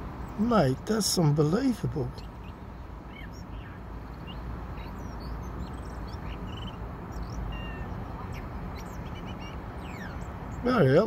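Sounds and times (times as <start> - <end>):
blackbird singing: 0.2 - 11.0.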